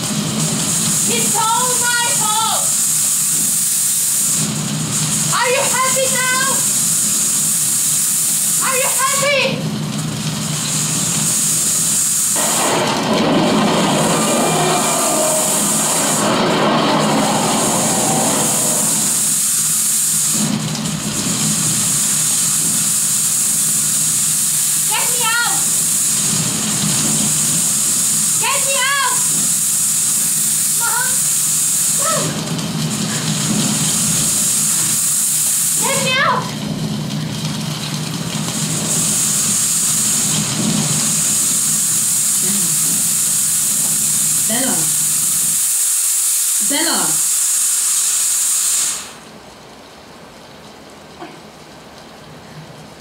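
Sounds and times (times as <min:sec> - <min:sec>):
loud rushing hiss and rumble: 0:00.0 - 0:53.0
low hum: 0:12.4 - 0:19.3
faint voice glide: 0:32.0 - 0:32.4.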